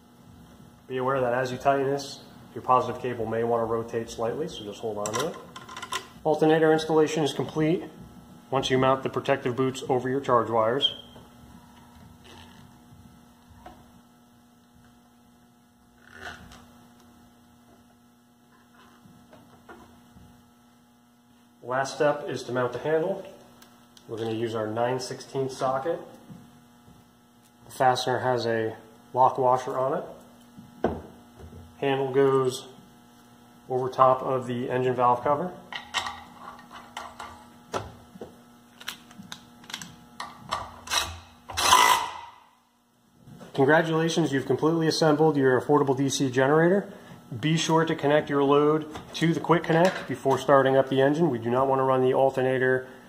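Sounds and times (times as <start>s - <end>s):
faint electrical hum: 0.0s - 53.0s
tools and metal parts clattering: 5.0s - 6.1s
cordless driver whirring: 40.9s - 42.3s.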